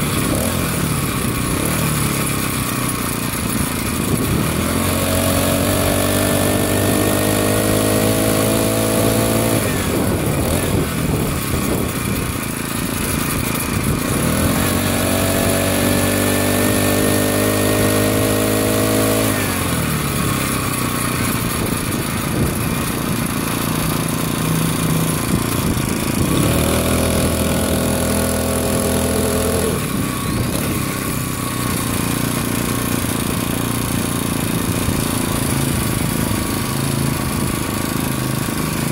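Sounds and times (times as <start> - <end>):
small gas engine revving: 0.0 - 38.9
rushing wind noise: 9.1 - 17.7, 21.5 - 23.7, 25.2 - 28.0.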